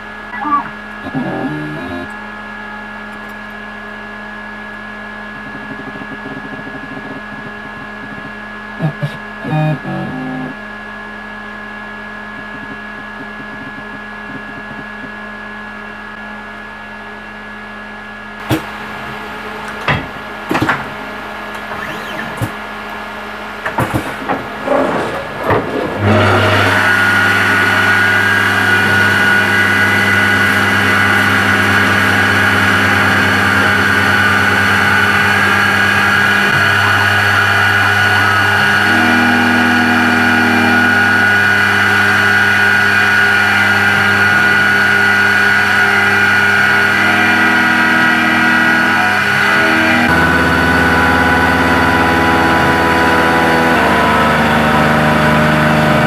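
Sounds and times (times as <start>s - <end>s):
milling machine hum: 0.0s - 56.0s
spindle high whine: 11.6s - 24.5s, 26.5s - 56.0s.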